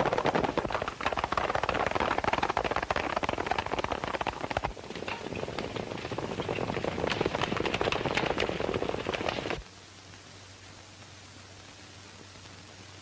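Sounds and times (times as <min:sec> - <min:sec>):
horses galloping hoofbeats: 0:00.0 - 0:09.6.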